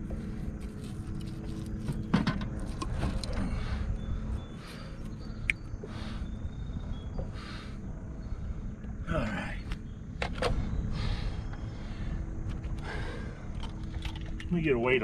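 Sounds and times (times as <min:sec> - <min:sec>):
low steady rumble: 0:00.0 - 0:15.0
man breathing hard: 0:03.3 - 0:08.7, 0:10.5 - 0:13.7.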